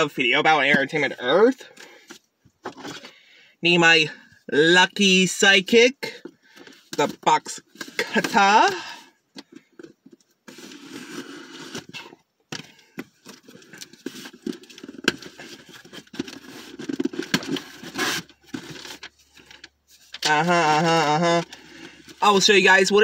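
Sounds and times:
cardboard scraping and crackling: 9.6 - 22.5
box cutter cutting cardboard: 16.4 - 18.7.

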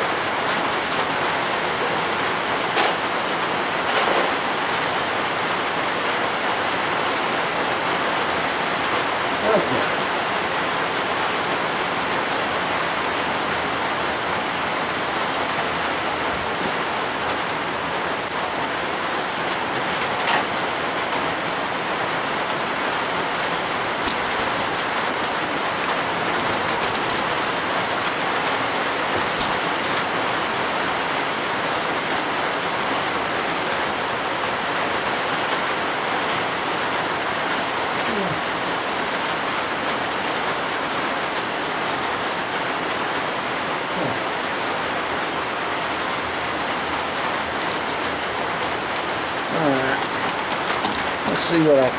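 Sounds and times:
steady hiss: 38.1 - 48.4, 51.0 - 51.9.

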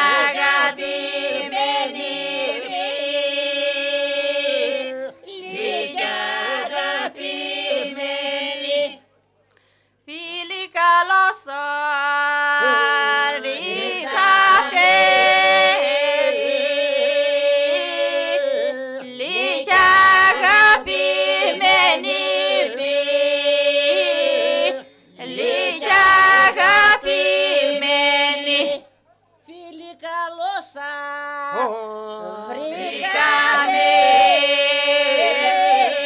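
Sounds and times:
women singing unaccompanied folk song: 0.0 - 9.1, 10.0 - 36.0.

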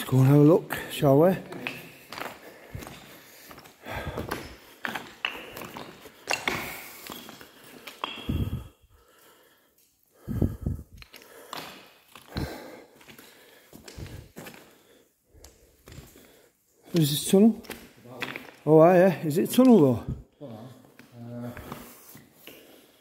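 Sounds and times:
heavy breathing: 1.8 - 17.0.

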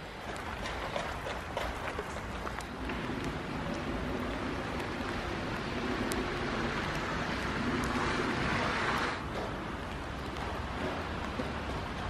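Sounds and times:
freezing rain hissing: 2.4 - 12.0.

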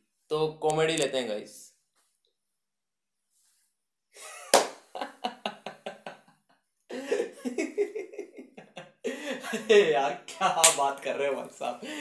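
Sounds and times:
man laughing exaggeratedly: 4.2 - 6.3, 6.9 - 10.2.

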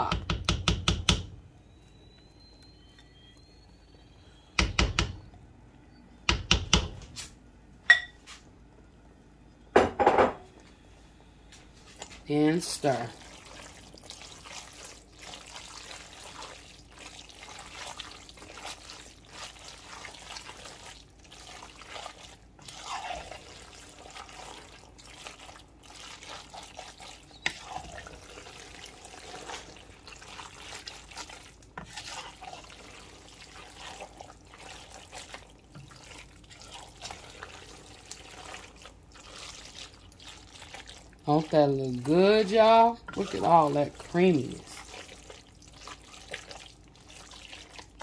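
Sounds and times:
spoon knock: 7.9 - 8.2
wet sticky squelching: 13.1 - 48.0.

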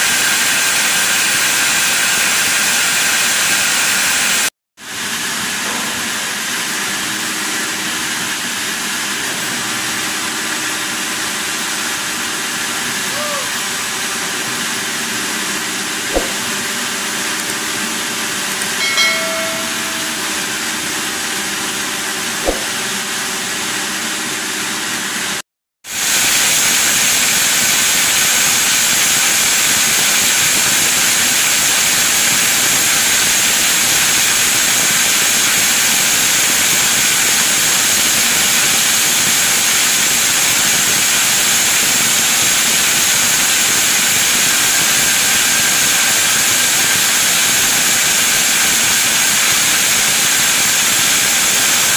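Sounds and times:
sawmill machinery hissing: 0.0 - 21.1, 22.4 - 51.9
short tone: 18.6 - 20.8.

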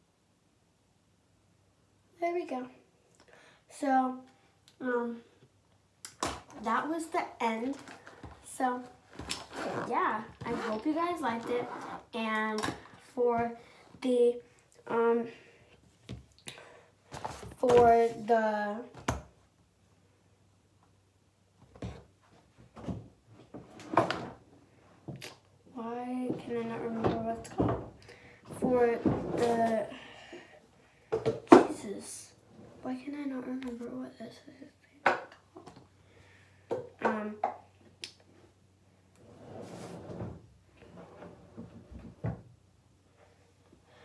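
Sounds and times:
scraping slide: 39.2 - 40.3.

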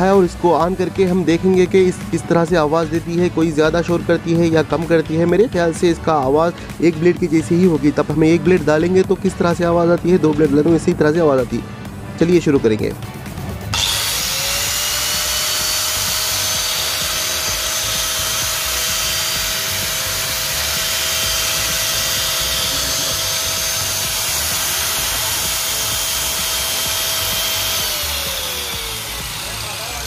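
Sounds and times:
angle grinder whining: 13.6 - 30.0.

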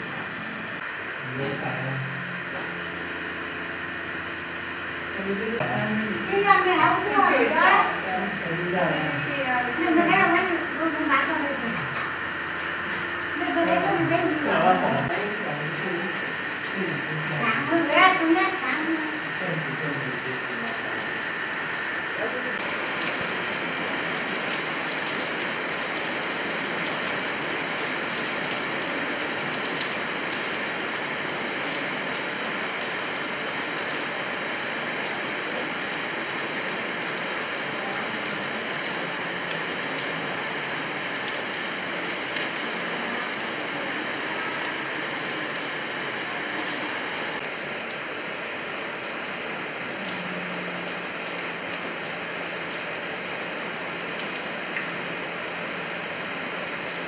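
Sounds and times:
heavy rain splashing on rock: 17.5 - 57.0.

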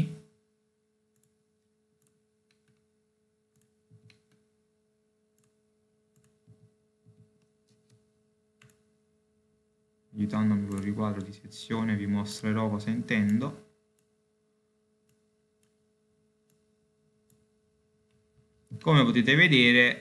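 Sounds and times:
faint steady hum: 0.0 - 20.0
computer mouse clicks: 1.1 - 1.4, 2.0 - 2.9, 3.5 - 4.5, 5.4 - 8.0, 8.6 - 8.9, 10.6 - 11.4, 15.0 - 15.8, 16.4 - 18.9.

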